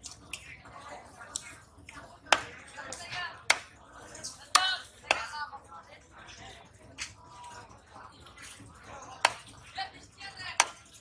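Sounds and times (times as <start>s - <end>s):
knife chopping on wooden block: 3.5s - 3.7s.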